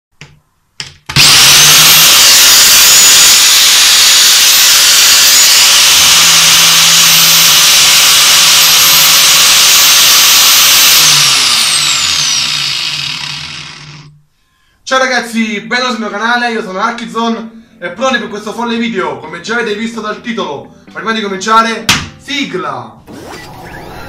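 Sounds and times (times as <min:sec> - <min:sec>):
angle grinder high whine: 0:01.1 - 0:14.2, 0:23.0 - 0:24.0.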